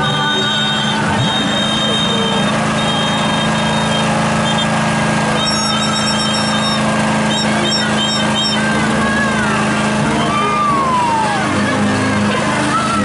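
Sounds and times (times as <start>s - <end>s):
short high-pitched peeps: 0.0s - 8.8s
car engines idling: 0.0s - 13.0s
falling whistle-like tones: 5.4s - 8.7s.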